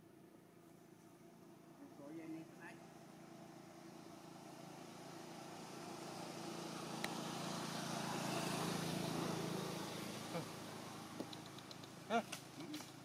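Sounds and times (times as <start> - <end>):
vehicle engine hum: 0.0 - 13.0
sharp click: 11.2 - 12.0.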